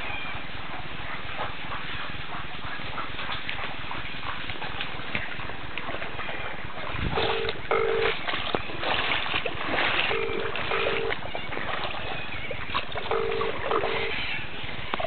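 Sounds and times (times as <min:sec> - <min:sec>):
floodwater rushing: 0:05.0 - 0:14.9
wind on microphone: 0:06.8 - 0:07.7
short beeps: 0:10.1 - 0:11.2.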